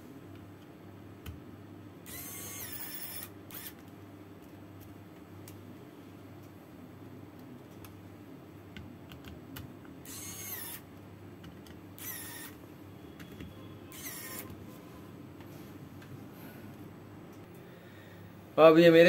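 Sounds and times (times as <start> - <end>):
electric screwdriver whirring: 2.0 - 3.8, 10.0 - 10.8, 12.0 - 12.6, 13.9 - 14.5.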